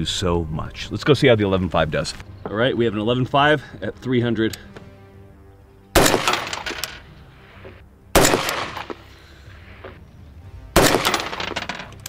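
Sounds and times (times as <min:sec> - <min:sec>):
rifle shots: 0:06.0 - 0:07.0, 0:08.2 - 0:09.1, 0:10.8 - 0:11.7.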